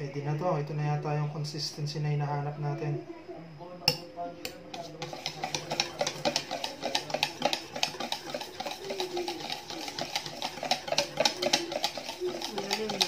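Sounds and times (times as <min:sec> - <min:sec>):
whisk clicking in metal bowl: 0:03.9 - 0:13.0.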